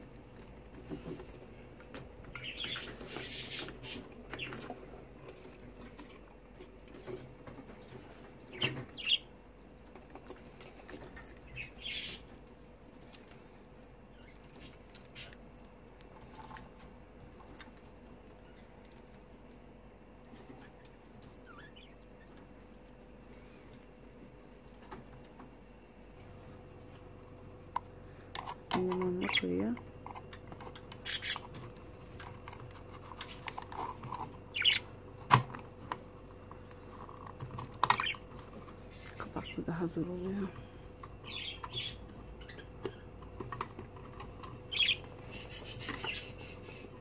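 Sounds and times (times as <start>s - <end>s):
budgerigar chirps: 44.7s - 46.8s.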